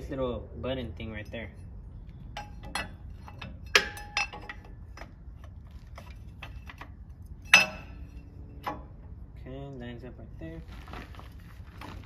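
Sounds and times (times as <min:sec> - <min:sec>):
metal bracket clanking against axle: 0:00.9 - 0:09.4.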